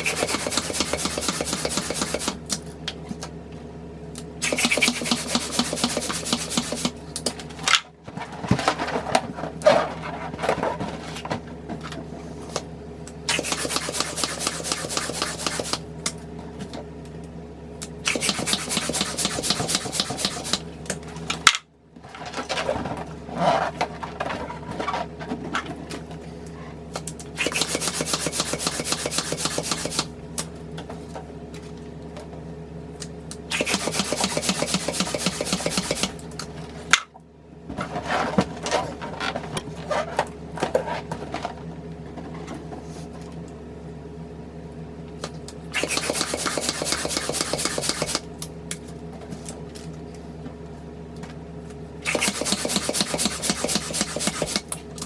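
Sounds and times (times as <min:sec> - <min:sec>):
hand balloon pump pumping air: 0:00.0 - 0:02.4, 0:04.4 - 0:07.0, 0:13.3 - 0:15.8, 0:18.1 - 0:20.6, 0:27.4 - 0:30.1, 0:33.5 - 0:36.2, 0:45.7 - 0:48.2, 0:52.0 - 0:54.7.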